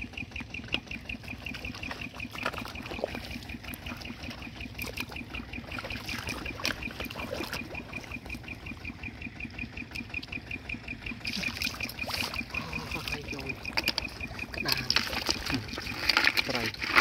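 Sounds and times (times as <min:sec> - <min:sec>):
steady high chirp: 0:00.0 - 0:16.7
hands splashing in muddy water: 0:01.4 - 0:08.4, 0:11.2 - 0:17.0.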